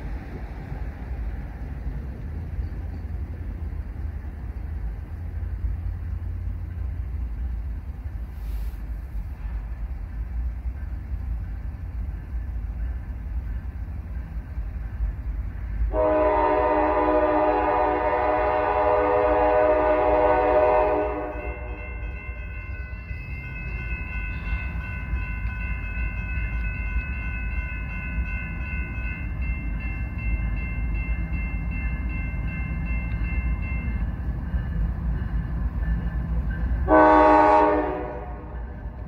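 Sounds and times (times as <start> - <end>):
train rumble: 0.0 - 39.0
crossing signal ringing: 15.8 - 39.0
locomotive air horn: 15.9 - 21.8, 36.8 - 38.7.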